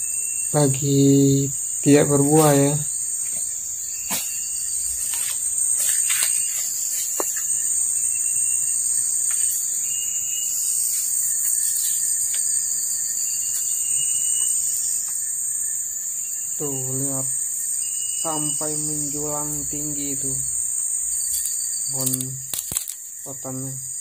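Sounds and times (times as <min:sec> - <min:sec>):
insects droning: 0:00.0 - 0:24.0
sharp clicks: 0:21.4 - 0:23.0.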